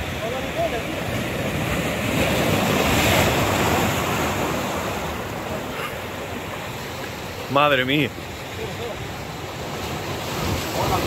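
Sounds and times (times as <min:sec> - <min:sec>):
sea surf breaking over rocks: 0:00.0 - 0:11.0.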